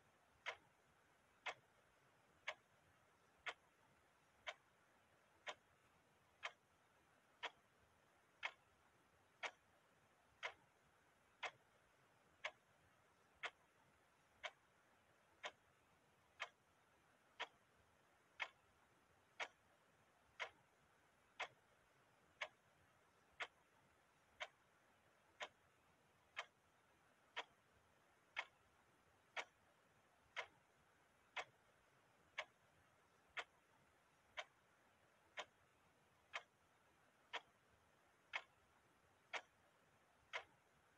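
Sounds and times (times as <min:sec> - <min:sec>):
clock ticking: 0:00.0 - 0:40.9.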